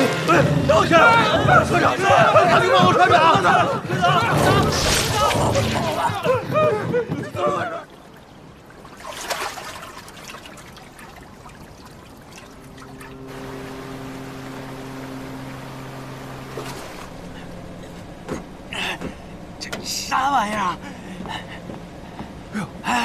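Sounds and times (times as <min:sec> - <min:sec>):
water sloshing and trickling: 0:04.2 - 0:23.0
ship's horn low blast: 0:12.5 - 0:22.9.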